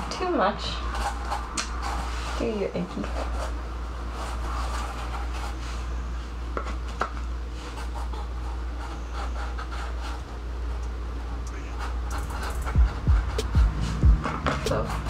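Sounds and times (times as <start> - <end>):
steady low hum: 0.0 - 15.0
foam pieces rubbing and scratching: 11.3 - 15.0.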